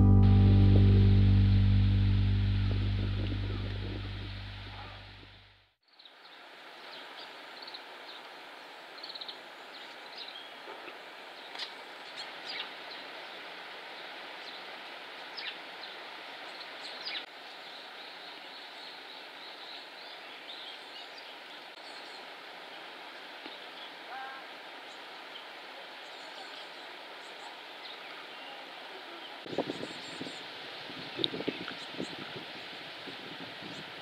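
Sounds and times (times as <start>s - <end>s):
stream water rushing: 11.0s - 18.4s, 21.4s - 34.0s.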